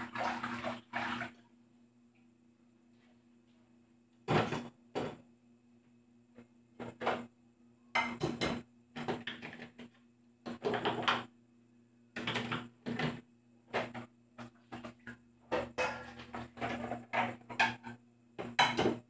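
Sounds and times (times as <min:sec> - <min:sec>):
dishes clattering in dish rack: 0:08.0 - 0:09.2, 0:15.5 - 0:19.0.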